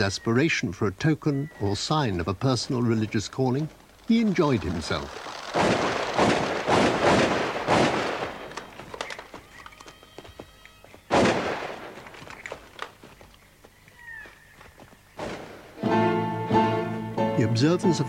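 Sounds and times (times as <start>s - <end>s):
shotgun blasts echoing: 4.4s - 9.2s, 11.1s - 12.2s
faint clicks: 8.4s - 10.8s, 12.0s - 14.0s.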